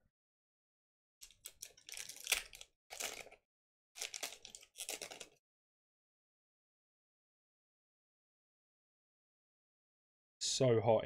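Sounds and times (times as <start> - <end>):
foil wrapper tearing and crinkling: 1.2 - 3.4, 4.0 - 5.4.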